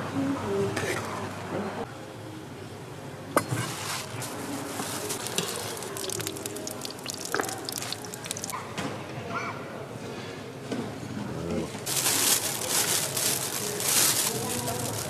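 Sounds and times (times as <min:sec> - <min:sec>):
food sizzling on hot surface: 0:05.0 - 0:08.5.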